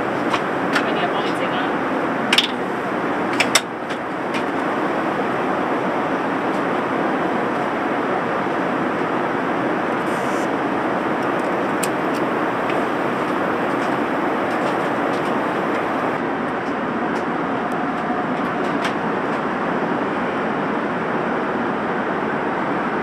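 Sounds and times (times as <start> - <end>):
airplane cabin roar: 0.0 - 23.0.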